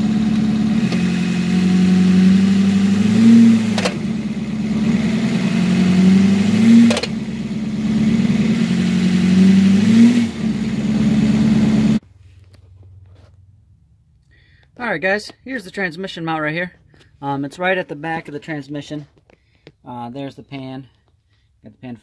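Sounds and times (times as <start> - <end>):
diesel engine idling and revving: 0.0 - 12.0.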